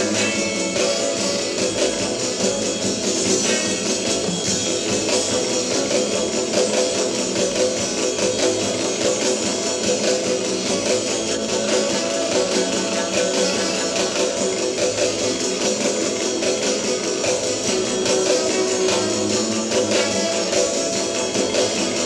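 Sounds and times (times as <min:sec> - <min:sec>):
drum kit beat: 0:00.0 - 0:22.0
electric guitar: 0:00.0 - 0:22.0.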